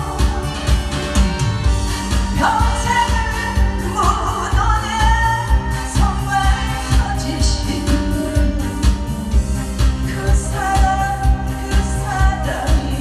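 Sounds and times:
steady drum beat: 0.0 - 13.0
woman singing into microphone: 2.3 - 9.1, 10.0 - 13.0.

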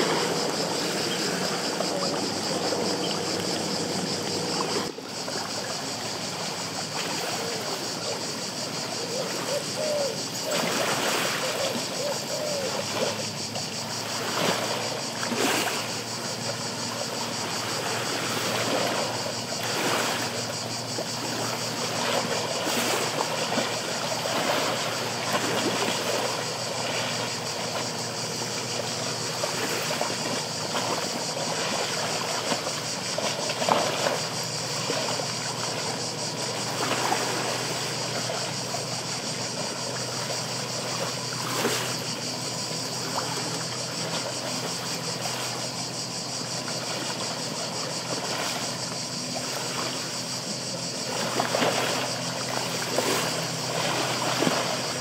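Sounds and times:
waves splashing against rocks: 12.8 - 55.0.

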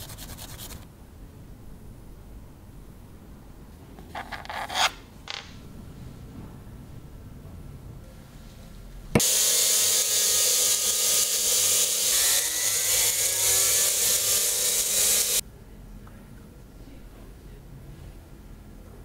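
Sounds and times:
rotary tool grinding metal: 9.2 - 15.4.

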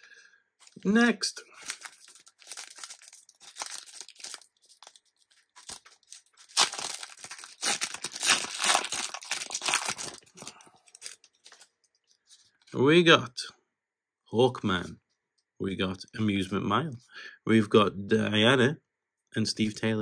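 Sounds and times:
foil wrapper tearing and crinkling: 1.5 - 11.6.

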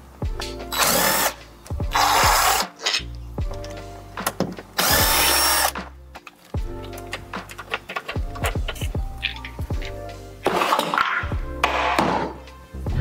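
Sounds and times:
cordless drill running: 0.8 - 2.6, 4.8 - 5.7.

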